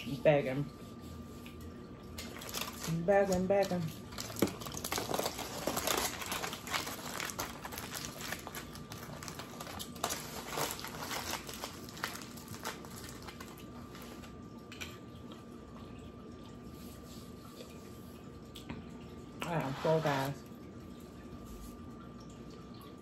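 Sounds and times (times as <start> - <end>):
aluminium foil crinkling: 2.1 - 14.4.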